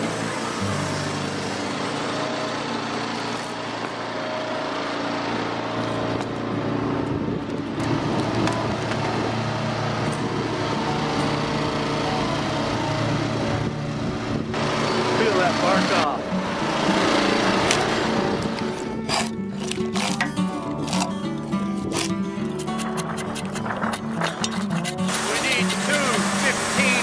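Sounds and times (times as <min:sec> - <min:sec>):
sawmill engine running: 0:00.0 - 0:27.0.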